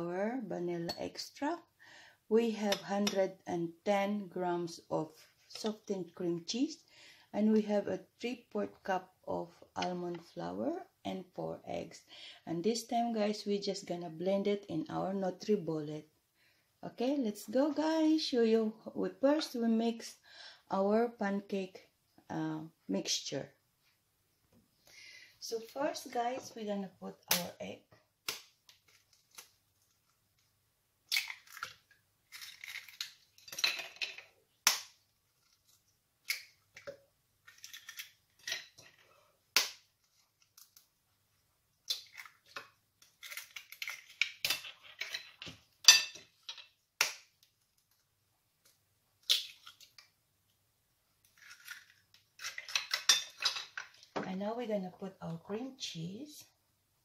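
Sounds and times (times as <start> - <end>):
eggshells cracking: 31.1 - 33.7, 34.6 - 38.8, 41.8 - 45.4, 48.6 - 50.1, 51.2 - 53.4.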